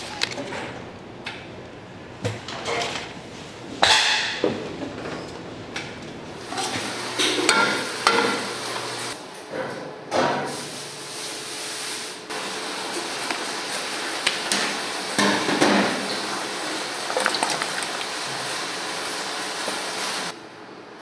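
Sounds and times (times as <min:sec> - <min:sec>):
steady background noise: 0:00.0 - 0:10.3.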